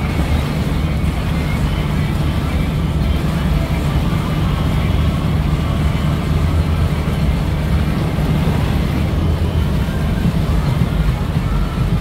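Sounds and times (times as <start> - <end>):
ride machinery drone: 0.0 - 12.0.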